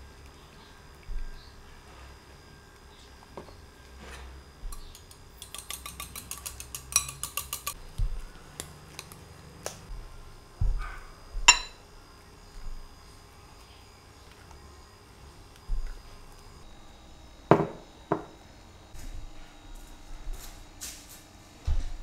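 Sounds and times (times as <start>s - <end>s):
whisk clicking against glass bowl: 4.7s - 7.8s
sharp glassy clink: 11.5s - 11.8s.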